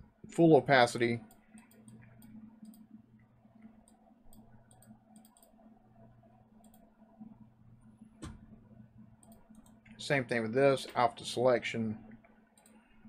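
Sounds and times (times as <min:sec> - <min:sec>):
low steady hum: 0:00.0 - 0:13.0
computer mouse clicking: 0:01.2 - 0:02.9, 0:03.6 - 0:05.6, 0:06.6 - 0:06.9, 0:09.2 - 0:10.0, 0:12.1 - 0:12.9.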